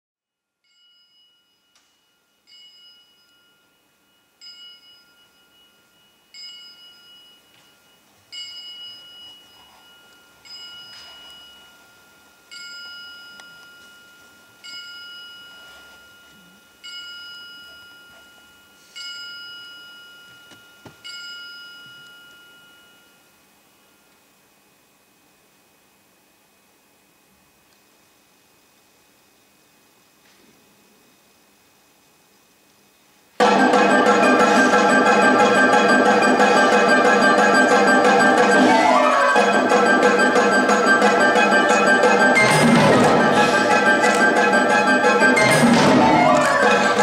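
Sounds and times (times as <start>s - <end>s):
struck metal bell tone: 0.6s - 23.3s.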